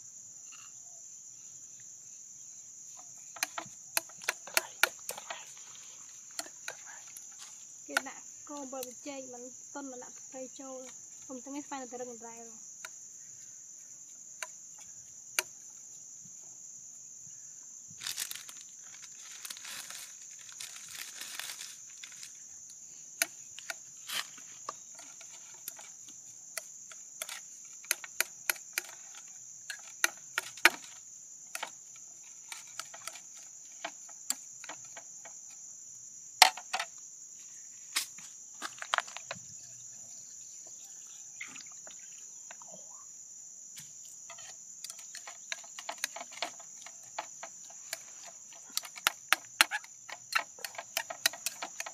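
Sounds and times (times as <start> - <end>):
insects droning: 0.0 - 51.9
crinkly rustling: 18.0 - 22.4.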